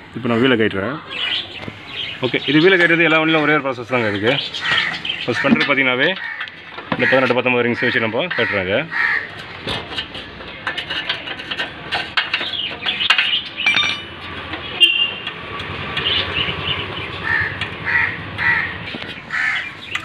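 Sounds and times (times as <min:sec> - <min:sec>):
crows cawing: 0:04.4 - 0:09.5, 0:17.1 - 0:20.0
metal wrench clinks: 0:13.6 - 0:14.2.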